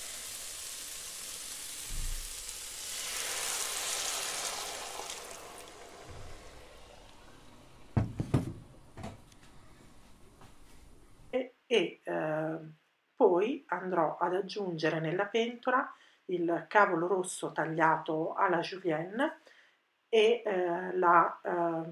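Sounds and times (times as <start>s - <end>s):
water splashing into a hot pot: 0.0s - 7.8s
rice sizzling and hissing in a pot: 0.0s - 8.0s.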